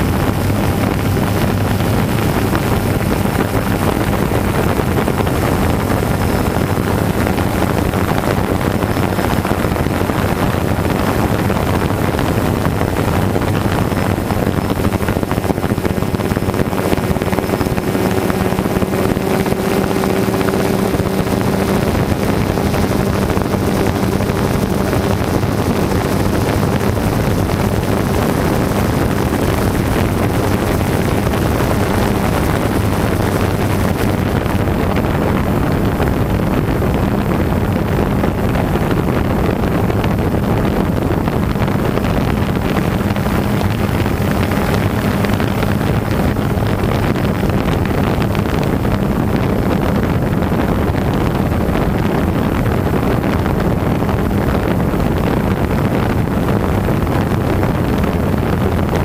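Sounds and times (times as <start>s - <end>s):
wind noise on microphone: 0.0s - 59.0s
quadcopter motors and propellers: 10.3s - 35.4s.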